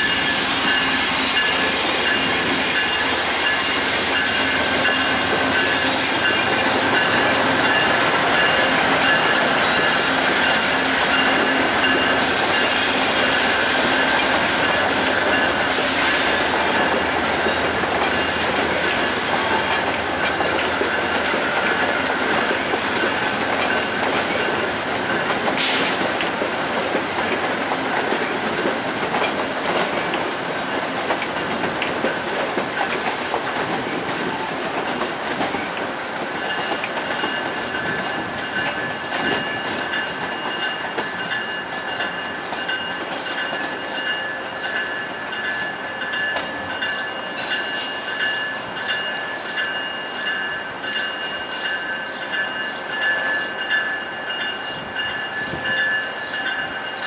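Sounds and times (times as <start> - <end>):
steel wheels squealing: 0.0 - 26.0, 36.4 - 53.7
wheels clacking over rail joints: 0.0 - 52.4
passenger train rolling past: 0.0 - 57.0.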